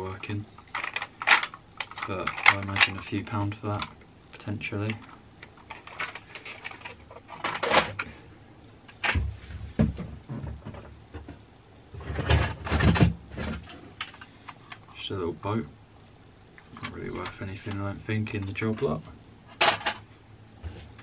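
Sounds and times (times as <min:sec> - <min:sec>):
plastic toys clattering: 0:00.6 - 0:03.1, 0:03.7 - 0:04.0, 0:04.9 - 0:08.1, 0:12.0 - 0:14.9, 0:18.4 - 0:20.1.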